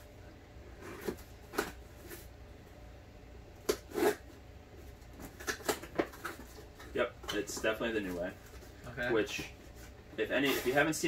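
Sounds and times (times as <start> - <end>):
cardboard scraping and rustling: 0.7 - 2.3
box cutter slicing packing tape: 3.7 - 4.2.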